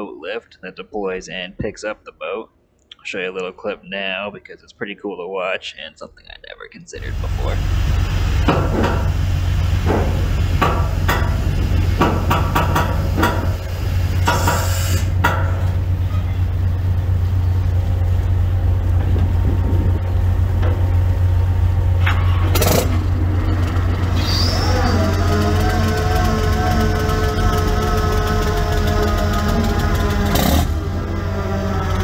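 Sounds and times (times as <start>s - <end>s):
machinery drone: 7.0s - 32.0s
clanks and knocks: 8.4s - 16.6s, 18.9s - 21.1s.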